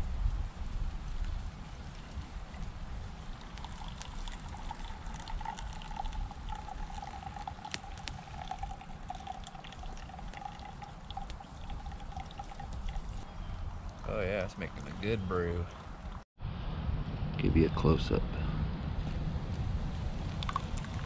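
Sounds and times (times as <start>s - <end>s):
water trickling into a cup: 3.2s - 13.2s, 20.4s - 21.0s.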